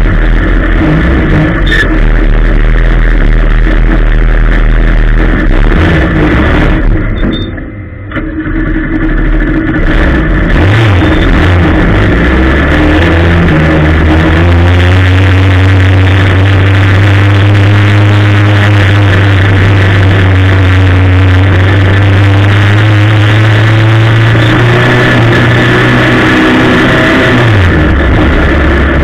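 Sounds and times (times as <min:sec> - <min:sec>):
race car engine revving: 0:00.0 - 0:07.5, 0:08.2 - 0:29.0.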